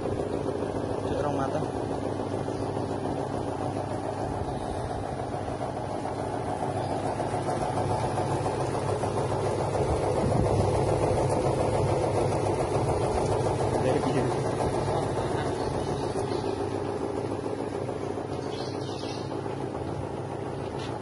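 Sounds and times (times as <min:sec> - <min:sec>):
plucker motor humming: 0:00.0 - 0:21.0.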